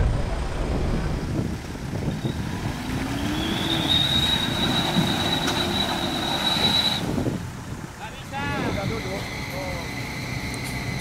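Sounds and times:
car engine rumbling: 0.0 - 11.0
winch whining: 3.1 - 7.2.

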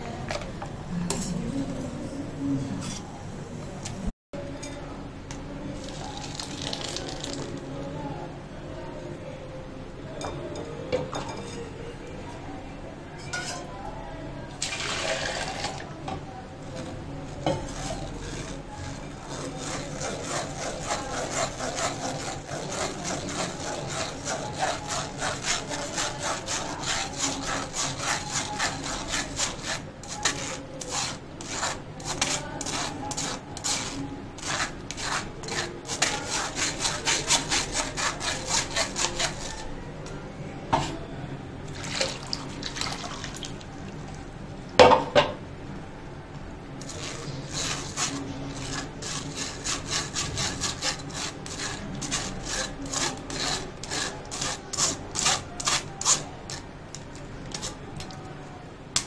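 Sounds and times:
spoon scraping metal strainer: 16.8 - 39.7, 46.8 - 58.2.

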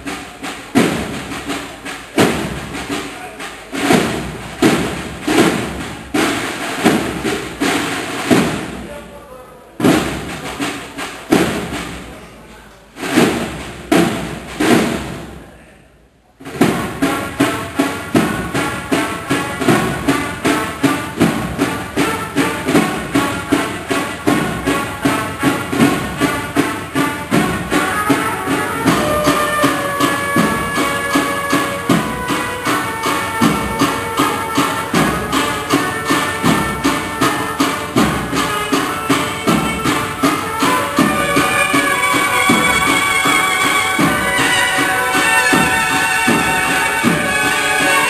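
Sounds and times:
drums playing a march: 0.0 - 15.6, 16.4 - 48.0
cornets playing held notes: 16.8 - 48.0.

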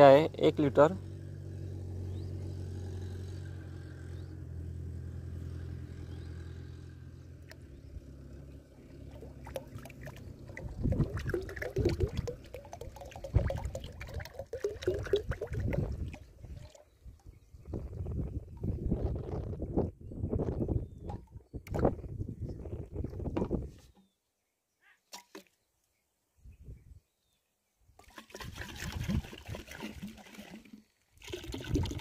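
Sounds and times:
liquid glugging from plastic bottle: 9.1 - 17.3, 28.0 - 32.0.

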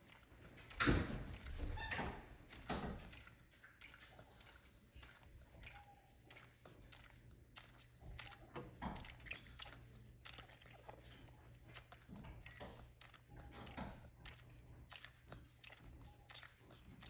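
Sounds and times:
monkey sucking on bottle: 0.0 - 17.0.

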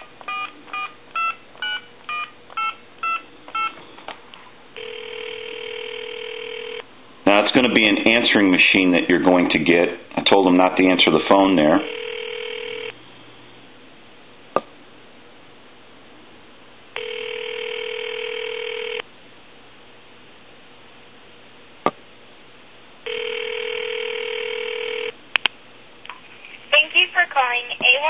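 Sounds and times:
telephone ringback tone: 0.0 - 3.8, 4.8 - 6.8, 11.8 - 13.0, 17.0 - 19.0, 23.1 - 25.2.

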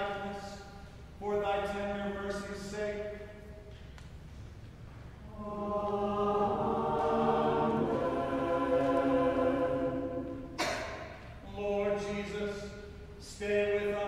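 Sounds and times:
church choir singing a cappella: 5.2 - 12.8.

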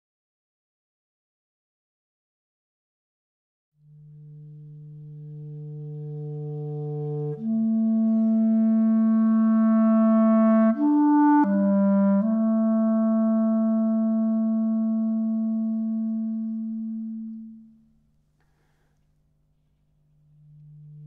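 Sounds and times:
solo clarinet long notes: 3.8 - 17.8, 20.2 - 21.0.

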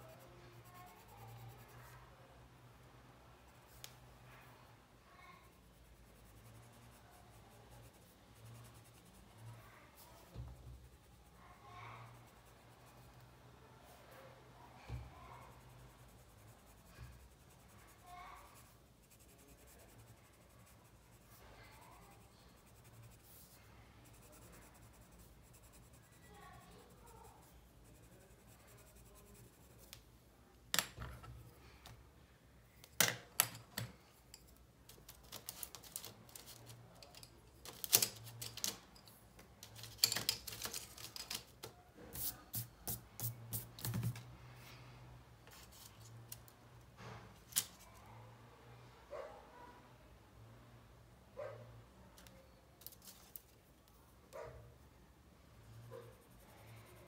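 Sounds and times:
wooden pencils clattering: 34.9 - 42.3.

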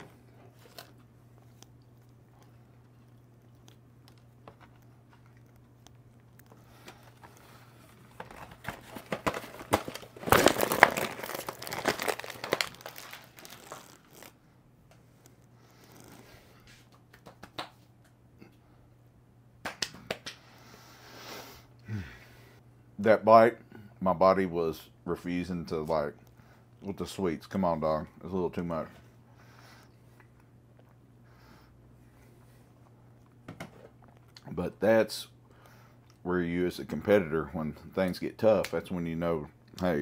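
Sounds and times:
plastic wrapping crinkling and tearing: 8.0 - 14.4.

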